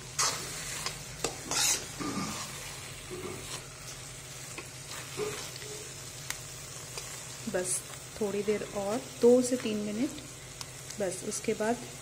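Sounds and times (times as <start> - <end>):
low sizzle of cooking: 0.0 - 12.0
spoon scraping metal pan: 0.2 - 3.7.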